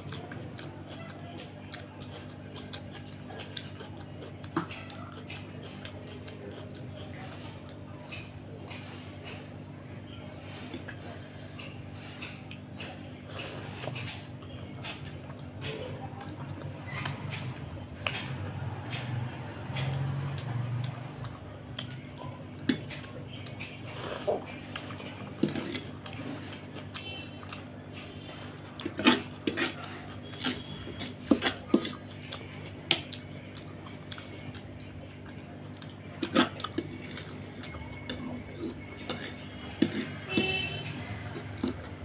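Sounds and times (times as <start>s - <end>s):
fork clinking and scraping on plate: 38.1s - 41.8s.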